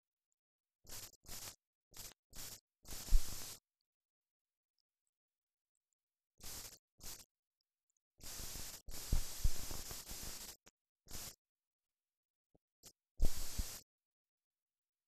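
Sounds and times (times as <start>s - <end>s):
static hiss and crackle: 0.8s - 3.7s, 6.4s - 7.4s, 8.2s - 11.4s, 12.8s - 13.9s.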